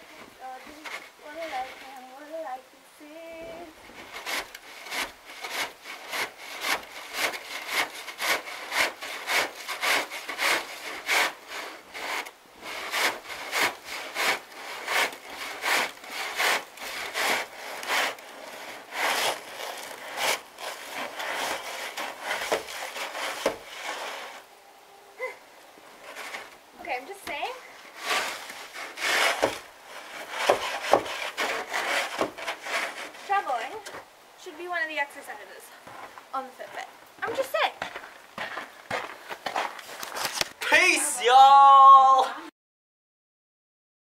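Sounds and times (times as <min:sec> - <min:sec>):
snow shovel scraping wooden deck: 0:00.0 - 0:02.2, 0:03.2 - 0:24.5, 0:25.9 - 0:34.1, 0:35.9 - 0:40.8.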